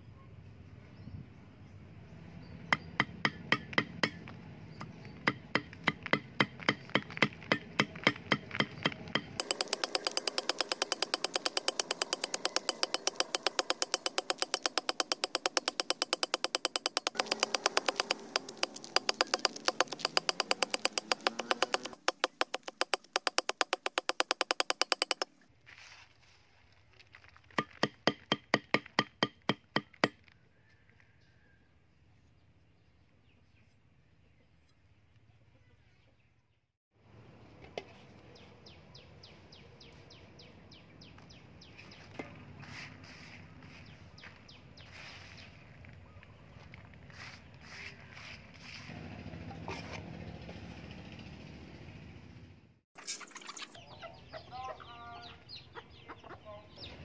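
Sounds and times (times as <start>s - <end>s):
axe chopping on wooden block: 2.8s - 4.3s, 5.2s - 25.3s, 27.6s - 30.2s.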